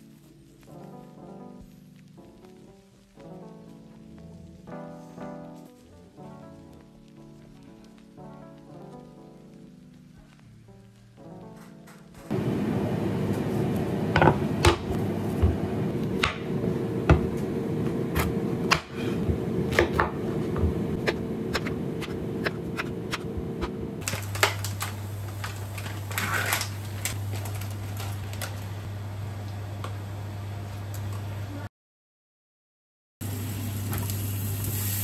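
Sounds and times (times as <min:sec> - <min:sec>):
steady low hum: 0:12.3 - 0:31.7
knife chopping on wooden board: 0:18.1 - 0:23.8.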